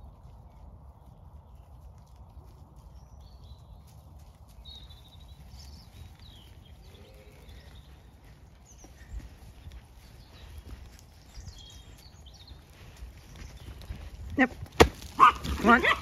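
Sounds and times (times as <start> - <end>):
bird chirps: 10.0 - 14.0.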